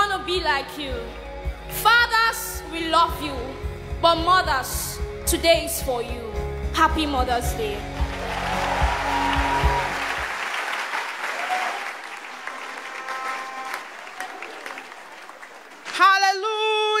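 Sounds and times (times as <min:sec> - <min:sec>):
background music: 0:00.0 - 0:10.8
audience applauding: 0:08.0 - 0:16.0.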